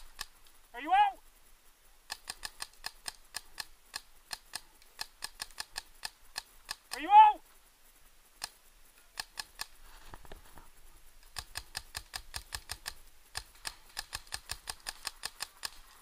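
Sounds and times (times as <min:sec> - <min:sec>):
paintball markers firing: 0:11.3 - 0:15.8.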